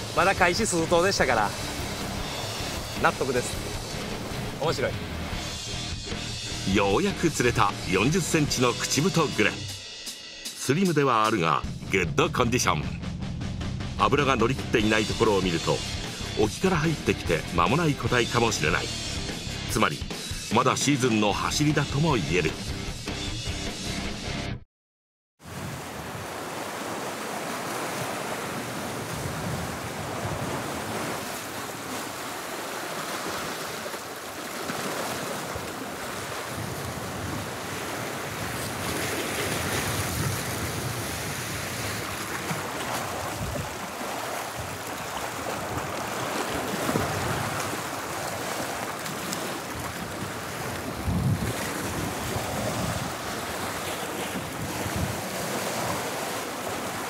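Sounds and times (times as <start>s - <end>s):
surf breaking against rocks: 25.5s - 57.0s
wind buffeting microphone: 28.8s - 31.2s, 36.5s - 43.8s, 49.7s - 56.0s.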